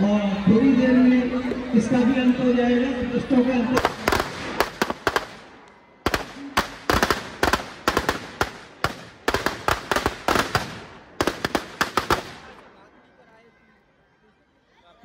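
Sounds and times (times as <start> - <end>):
firecrackers cracking: 3.8 - 12.7.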